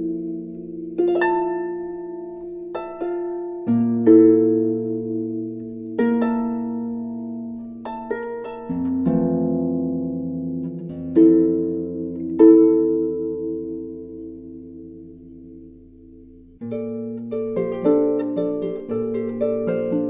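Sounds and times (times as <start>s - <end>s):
plucked harp notes: 0.0s - 20.0s.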